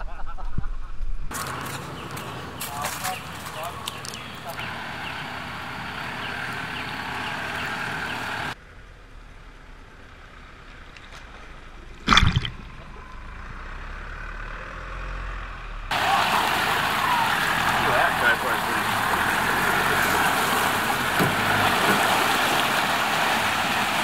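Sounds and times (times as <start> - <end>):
off-road vehicle engine running: 1.3 - 24.0.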